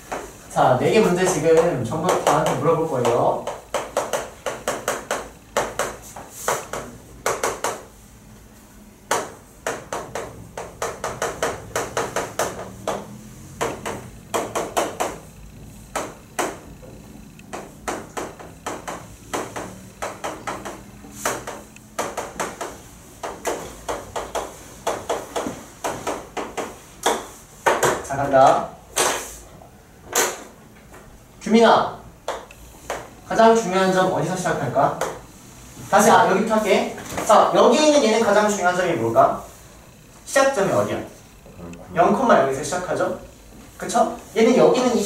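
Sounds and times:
chalk tapping on a chalkboard: 0.0s - 8.0s, 9.0s - 16.9s, 17.5s - 29.4s, 32.2s - 36.1s.

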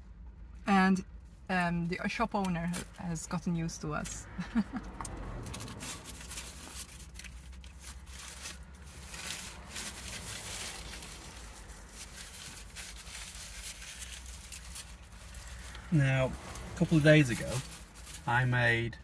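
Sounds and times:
paper wrapper rustling: 5.4s - 18.3s.

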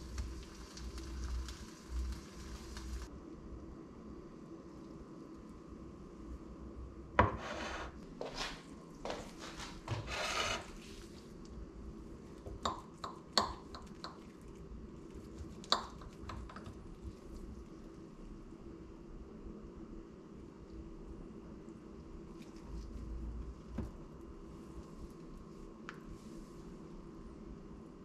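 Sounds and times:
rubbing scraping strokes: 9.9s - 11.0s.

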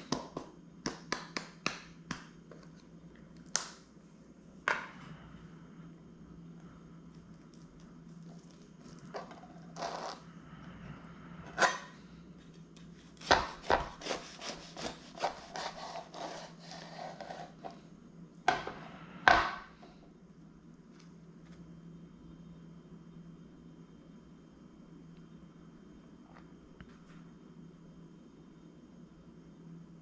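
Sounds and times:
knife sawing through bread: 13.2s - 17.7s.

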